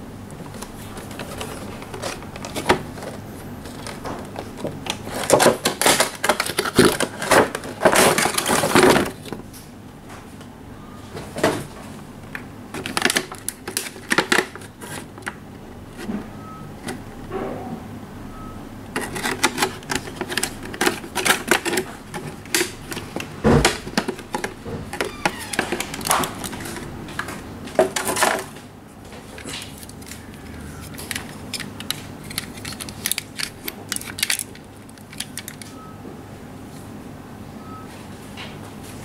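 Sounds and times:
plastic crinkling: 0.4 - 9.5, 12.7 - 15.4, 19.0 - 28.6, 29.2 - 35.8
cardboard and plastic rustling: 0.4 - 9.6, 11.2 - 17.1, 18.9 - 35.8.

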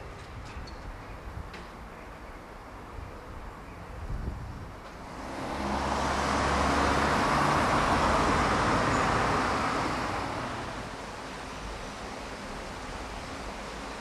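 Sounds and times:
vehicle passing by: 5.0 - 12.0.

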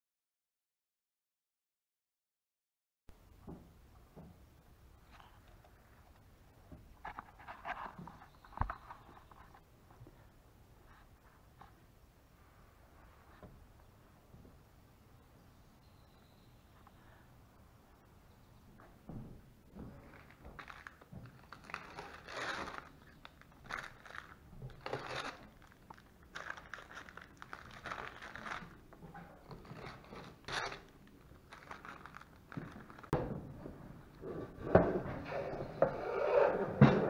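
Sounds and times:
knocks and handling noise: 5.1 - 10.2
packing tape crinkling and tearing: 20.0 - 33.2.

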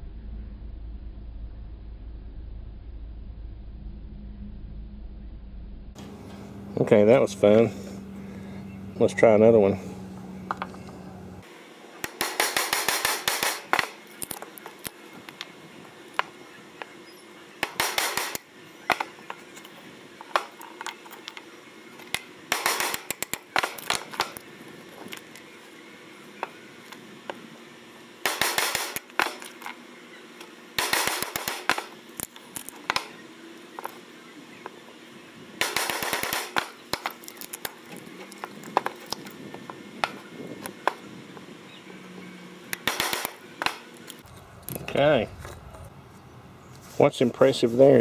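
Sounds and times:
wood cracking and splitting: 35.7 - 39.3.

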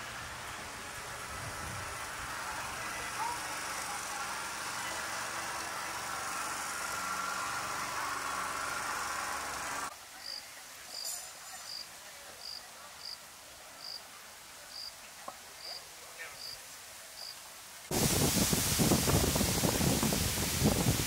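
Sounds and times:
insect chirping in high pips: 16.4 - 16.6, 17.2 - 17.4.

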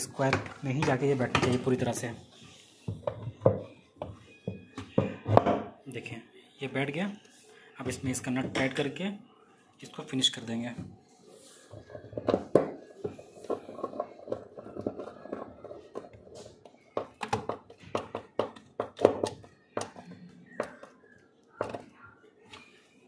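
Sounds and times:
screwdriver clicking and knocking on plastic: 12.1 - 21.8.

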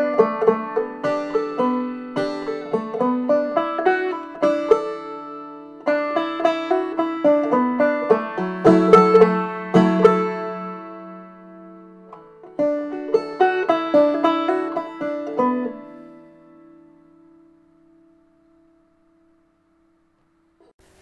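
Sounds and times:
banjo picking: 0.0 - 19.2.

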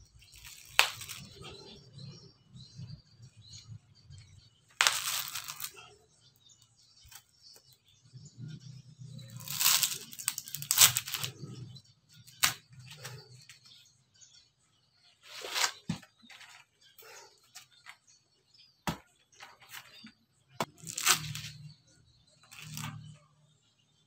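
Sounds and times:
coconut husk fibres tearing: 0.2 - 1.6, 4.8 - 6.0, 9.2 - 11.6, 12.2 - 13.2, 20.6 - 21.6, 22.4 - 23.0.

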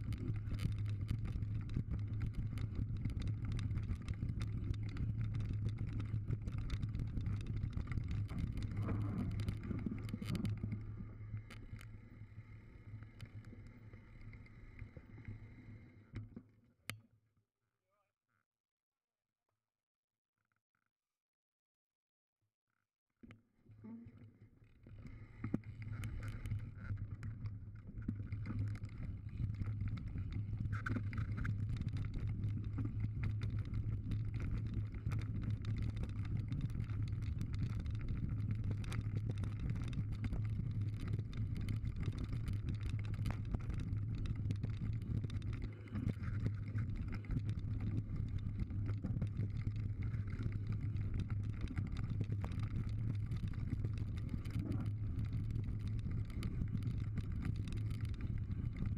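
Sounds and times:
bike clicks and rattles: 0.0 - 12.1, 25.1 - 58.9.

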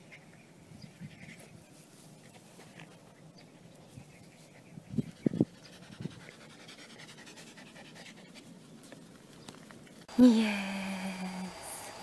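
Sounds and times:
dog panting: 4.6 - 8.7.

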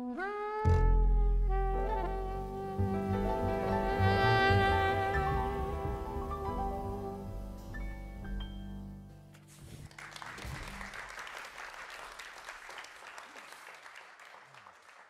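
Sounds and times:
jazz quartet chord ringing: 0.1 - 9.6
audience applause: 9.8 - 15.0.

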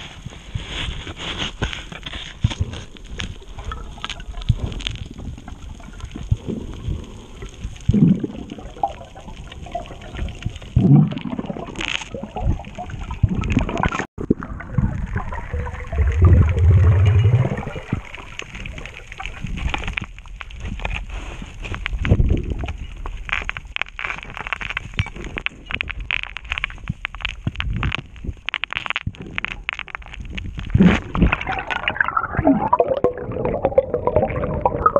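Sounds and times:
water gurgling underwater: 2.6 - 19.8, 28.8 - 34.9.

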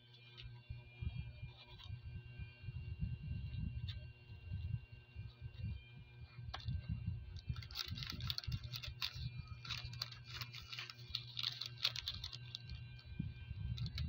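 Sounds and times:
pizza slice crackling and clicking: 7.4 - 13.1.

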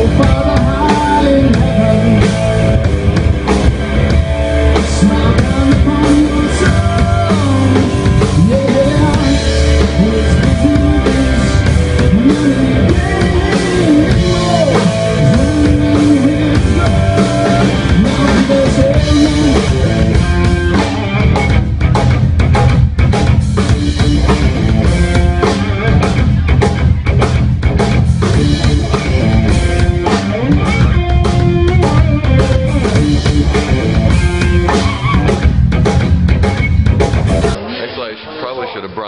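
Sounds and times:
drum kit: 0.0 - 38.8
electric guitar with bent notes: 0.0 - 39.0.

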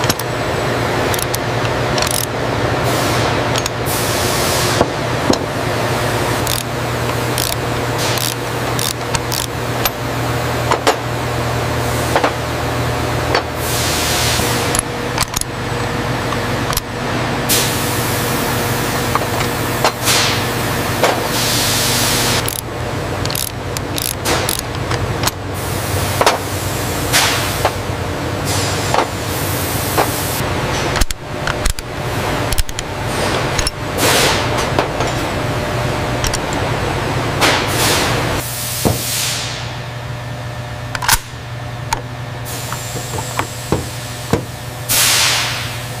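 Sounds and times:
steady machine hum and hiss: 0.0 - 46.0
sharp metallic clicks: 1.1 - 2.4, 6.4 - 10.0, 22.4 - 25.4.

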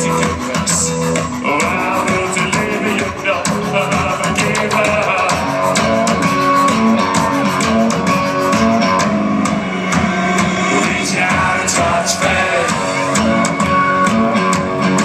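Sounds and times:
live rock band playing: 0.0 - 15.0
drum hits: 5.9 - 15.0.

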